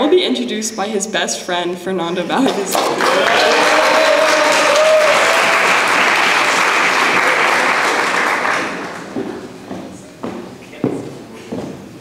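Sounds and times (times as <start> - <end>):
audience applauding: 2.6 - 9.6
footsteps on stage: 8.6 - 12.0.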